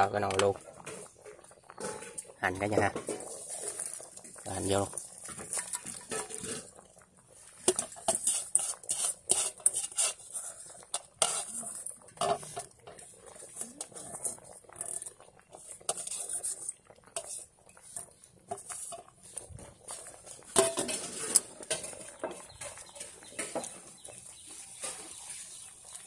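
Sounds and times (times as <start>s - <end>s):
metal pot clicks and clinks: 0.0s - 6.9s, 7.6s - 19.4s, 20.0s - 24.2s.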